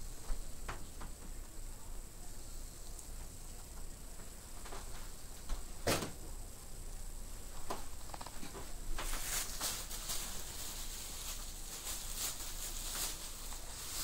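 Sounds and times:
soft rustles and clicks: 0:07.5 - 0:14.0.

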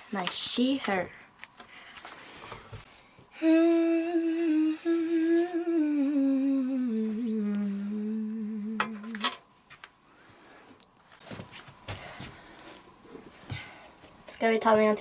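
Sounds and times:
woman humming a held note: 0:03.4 - 0:09.2.

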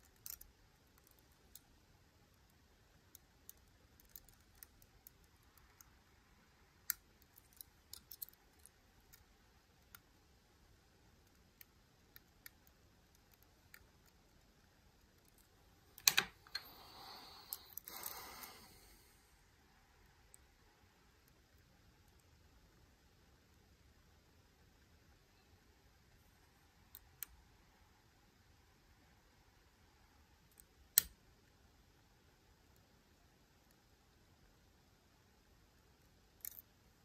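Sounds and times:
lock pick clicking in lock: 0:16.0 - 0:16.6.

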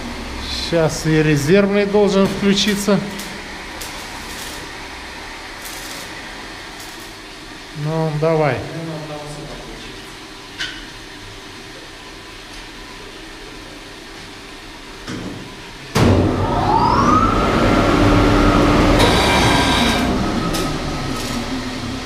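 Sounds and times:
machine hum: 0:00.0 - 0:22.0
electric pump motor whine: 0:15.8 - 0:22.0.

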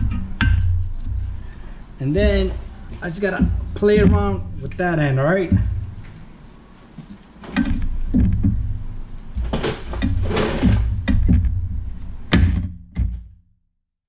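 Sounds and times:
metal control arm knocking: 0:00.0 - 0:01.4, 0:02.1 - 0:06.2, 0:07.5 - 0:12.8
handling noise: 0:00.0 - 0:13.2.

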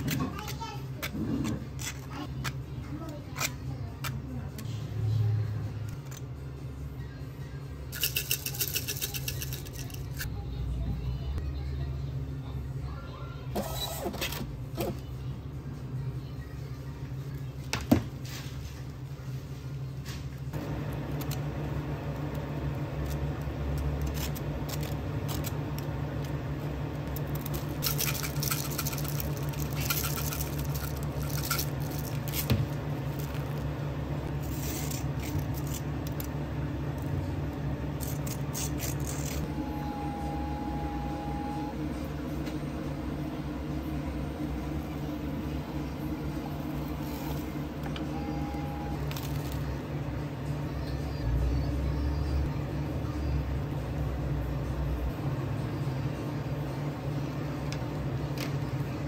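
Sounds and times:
appliance hum: 0:00.0 - 0:59.0.

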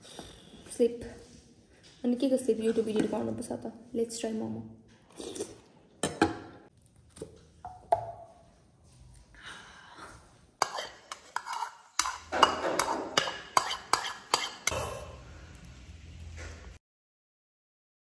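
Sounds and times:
cutlery clicking against dishes: 0:10.6 - 0:14.8.

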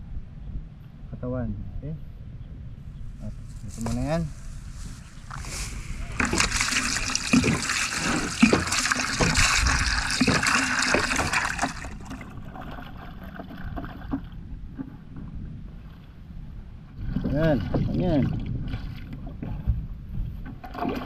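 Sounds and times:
water splashing and trickling: 0:03.8 - 0:16.2, 0:16.9 - 0:19.7, 0:20.4 - 0:21.0.

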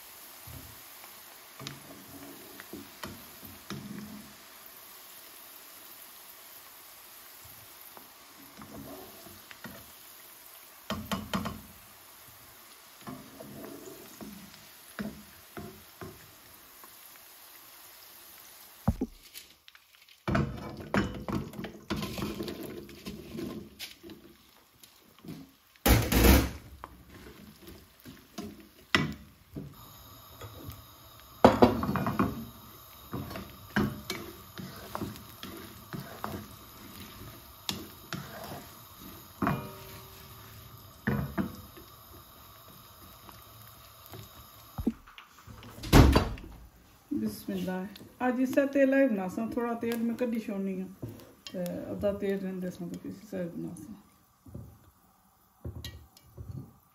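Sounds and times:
food sizzling in hot oil: 0:00.0 - 0:56.9
spatula scraping against pan: 0:31.4 - 0:41.6.

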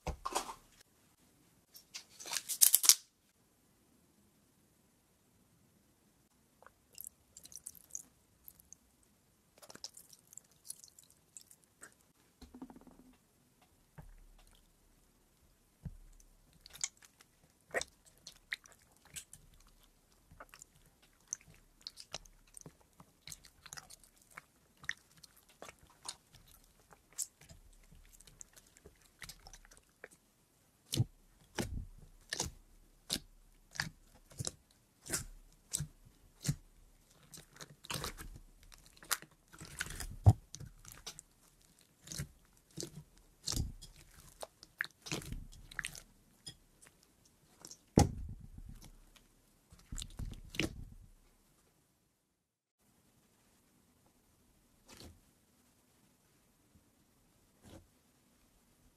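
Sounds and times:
crunchy slime crackling: 0:16.5 - 0:30.2, 0:30.8 - 0:51.0.

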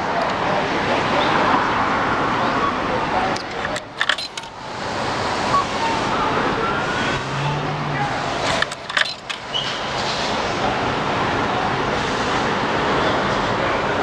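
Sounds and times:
street traffic noise: 0:00.0 - 0:14.0
sharp clicks and rattles: 0:03.4 - 0:04.6, 0:08.4 - 0:09.5.

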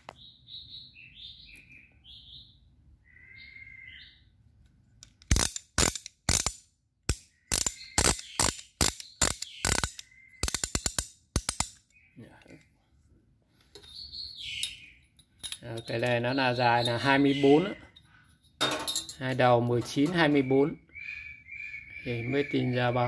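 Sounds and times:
bird chirps: 0:00.0 - 0:04.4, 0:07.2 - 0:10.8, 0:11.8 - 0:12.9, 0:13.6 - 0:18.4, 0:19.4 - 0:23.0
metal wrenches clicking and clacking: 0:05.0 - 0:11.8.

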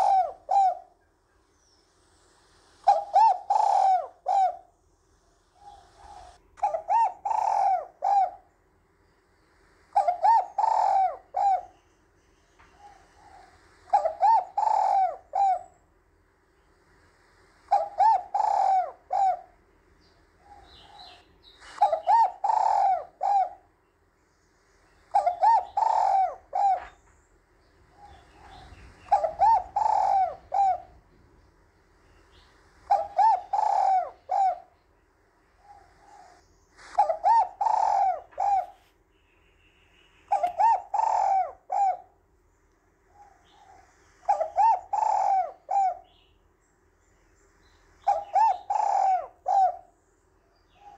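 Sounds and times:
dove cooing: 0:00.0 - 0:01.0, 0:02.8 - 0:08.5, 0:09.9 - 0:11.8, 0:12.6 - 0:15.8, 0:17.7 - 0:19.6, 0:20.2 - 0:23.8, 0:24.9 - 0:27.2, 0:27.8 - 0:34.8, 0:35.5 - 0:39.0, 0:40.3 - 0:42.3, 0:43.0 - 0:46.3, 0:48.0 - 0:50.0, 0:50.6 - 0:50.9.

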